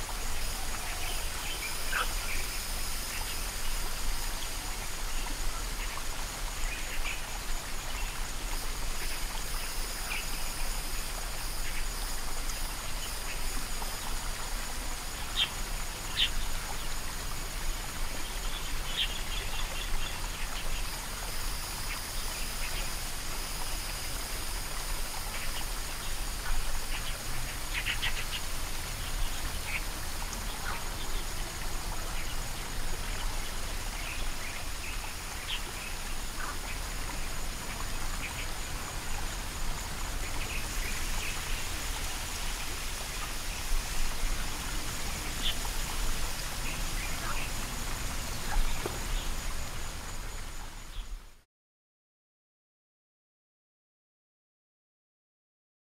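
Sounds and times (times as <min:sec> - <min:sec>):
high insect drone: 0:00.0 - 0:51.4.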